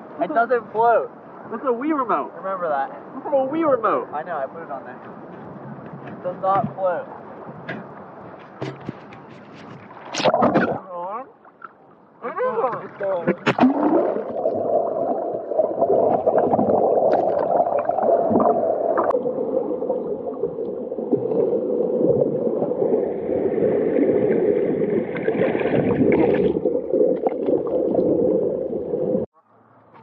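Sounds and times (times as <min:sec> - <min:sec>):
underwater rushing and gurgling: 0:09.3 - 0:12.2, 0:12.9 - 0:29.3.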